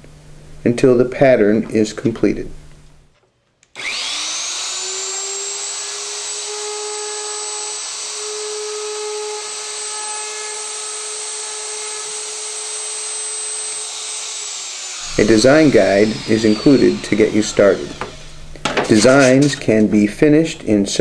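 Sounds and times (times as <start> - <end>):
electric router whining: 3.8 - 19.9.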